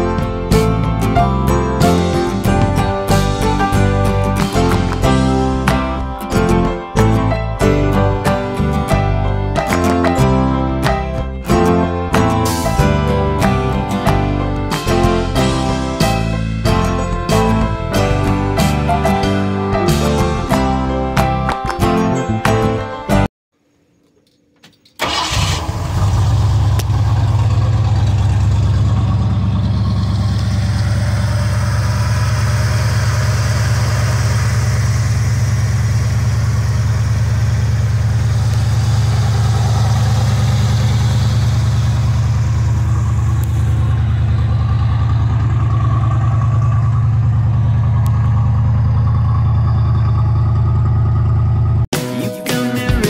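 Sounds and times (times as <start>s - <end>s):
truck engine idling: 0.0s - 21.5s, 25.0s - 51.9s.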